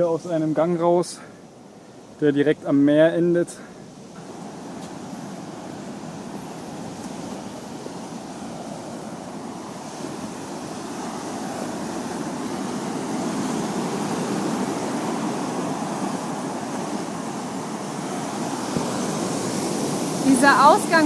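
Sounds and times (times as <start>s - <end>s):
sea surf washing onto beach: 0.0s - 21.0s.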